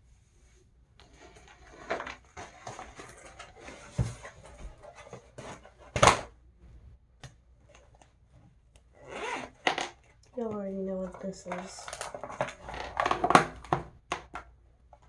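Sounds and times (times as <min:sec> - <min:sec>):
small objects rustling and clattering: 0:01.0 - 0:06.2, 0:09.6 - 0:15.0.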